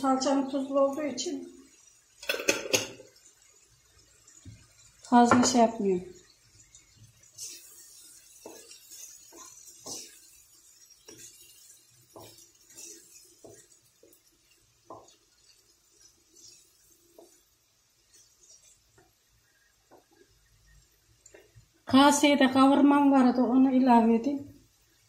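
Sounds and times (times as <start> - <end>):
wooden spoon scraping a pan: 7.0 - 21.6.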